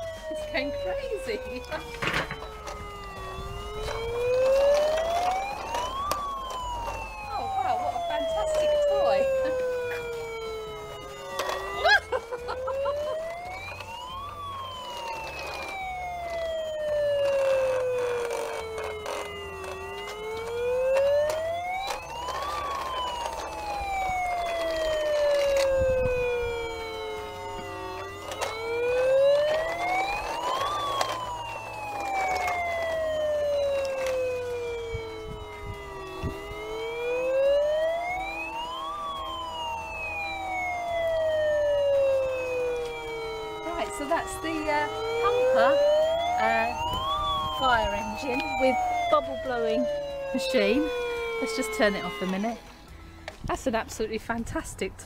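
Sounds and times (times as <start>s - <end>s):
toy siren wailing: 0.0s - 53.5s.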